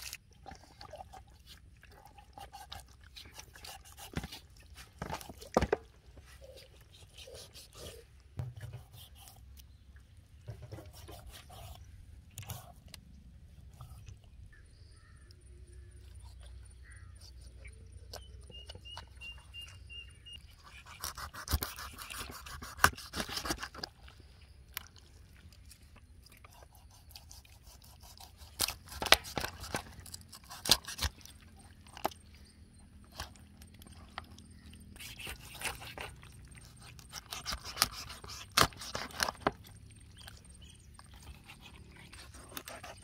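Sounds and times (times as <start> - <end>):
knife cutting through chicken: 20.6 - 23.8, 26.6 - 31.2, 34.9 - 39.6.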